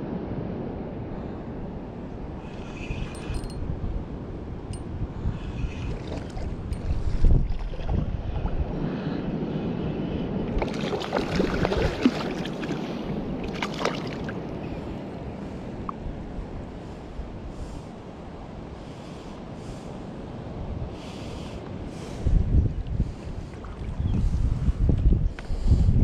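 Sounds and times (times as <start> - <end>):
wind rumbling on microphone: 0.0 - 26.0
sea water lapping: 5.3 - 9.2, 10.4 - 16.0, 23.0 - 24.5
water splashing and sloshing: 5.5 - 8.9, 10.4 - 14.9, 23.1 - 24.1.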